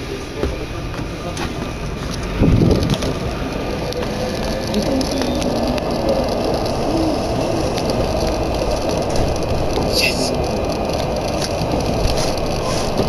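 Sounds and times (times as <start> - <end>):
train rumble: 0.0 - 13.0.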